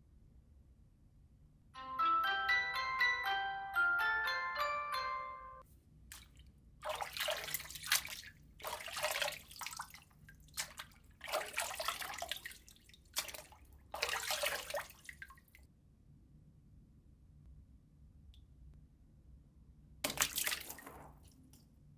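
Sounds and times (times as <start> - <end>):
water splashing in a tub: 6.1 - 15.6, 20.0 - 21.4.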